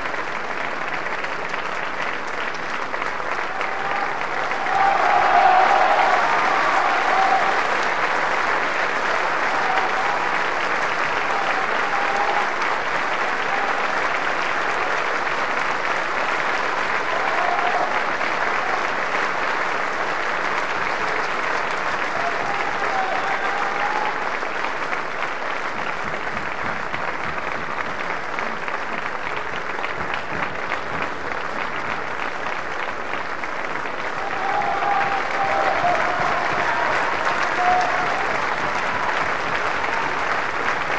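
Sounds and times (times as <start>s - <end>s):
audience applauding: 0.0s - 40.9s
shouts from crowd: 3.4s - 15.1s, 16.8s - 19.2s, 21.9s - 24.7s, 34.0s - 40.9s.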